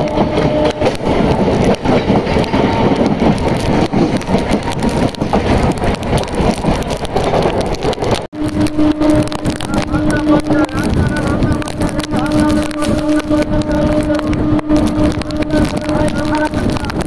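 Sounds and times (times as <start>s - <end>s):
rapid clattering knocks: 0.0s - 17.0s
rush of wind and rain: 0.0s - 17.0s
train wheels rumbling on track: 0.0s - 17.0s.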